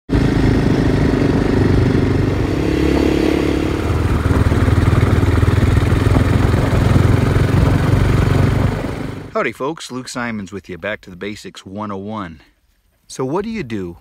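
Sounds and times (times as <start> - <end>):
vehicle engine running: 0.1 - 9.3.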